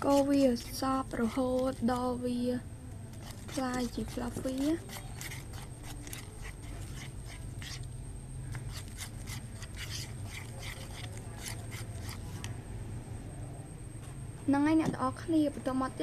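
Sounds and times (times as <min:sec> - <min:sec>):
spoon scraping slime in bowl: 0:00.0 - 0:02.2, 0:03.1 - 0:07.9, 0:08.5 - 0:12.6
steady low hum: 0:00.0 - 0:16.0.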